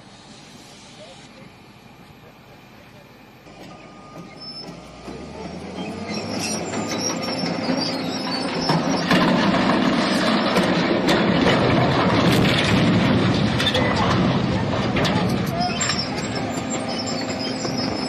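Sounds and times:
metal bending and squealing: 0:04.3 - 0:18.0.

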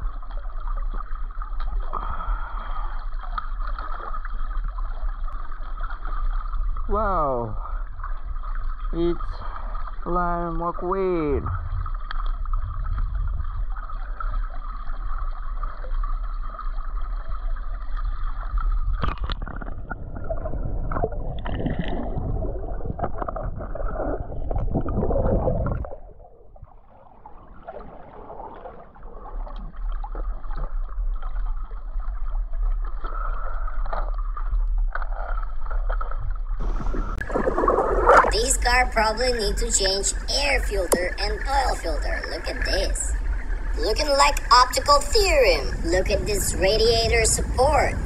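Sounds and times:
water sloshing and gurgling: 0:00.0 - 0:48.0
steady hum: 0:36.6 - 0:48.0.

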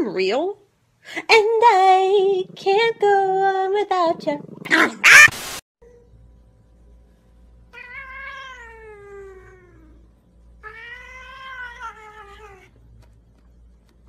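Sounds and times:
cat meowing: 0:07.8 - 0:10.0, 0:10.6 - 0:12.7.

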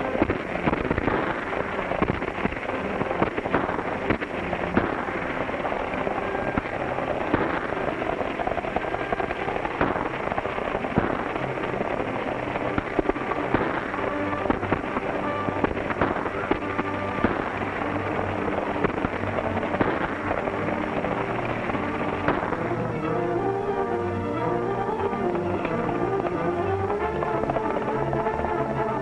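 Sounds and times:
horses galloping hoofbeats: 0:00.0 - 0:29.0.

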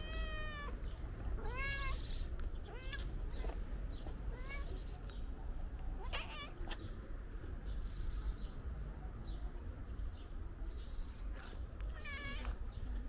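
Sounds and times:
cat meowing: 0:00.0 - 0:00.8, 0:01.4 - 0:03.5, 0:04.3 - 0:05.0, 0:06.0 - 0:06.7, 0:11.9 - 0:12.6.

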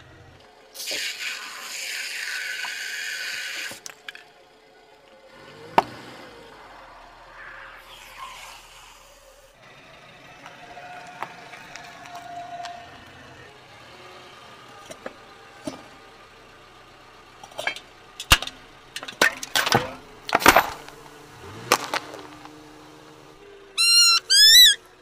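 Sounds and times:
low engine hum: 0:00.0 - 0:00.8, 0:03.9 - 0:25.0
tyre crushing cans: 0:17.6 - 0:21.0, 0:21.6 - 0:22.6
cans popping and crunching: 0:21.6 - 0:22.6
squeaky toys squeaking: 0:23.8 - 0:24.8.

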